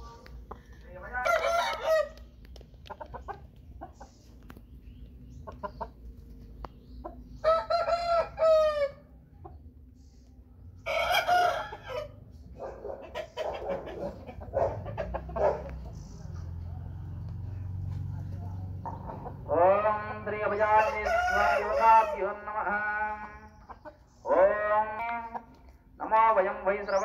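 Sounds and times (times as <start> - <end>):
rooster clucking: 0.8 - 4.5, 5.3 - 9.9, 10.8 - 25.7
rooster crowing: 1.2 - 2.2, 7.4 - 9.1, 10.8 - 12.2, 20.7 - 22.3.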